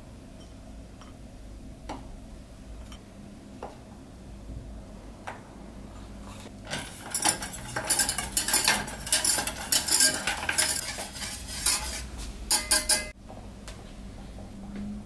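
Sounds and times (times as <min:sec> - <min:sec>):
whisk clinking against metal pot: 0:06.7 - 0:13.2.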